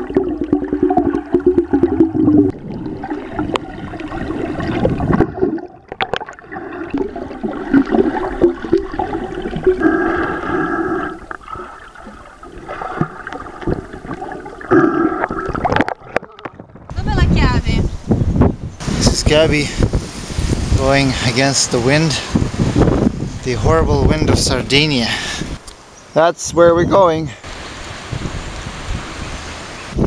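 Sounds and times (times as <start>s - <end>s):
water gurgling underwater: 0.0s - 17.0s.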